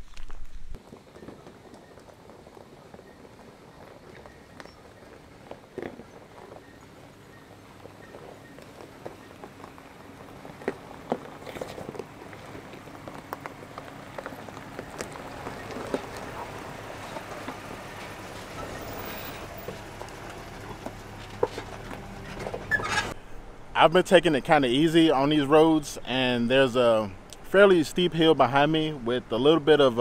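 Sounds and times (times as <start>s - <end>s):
tyres crunching on stones: 0.0s - 23.2s
truck engine running: 0.6s - 30.0s.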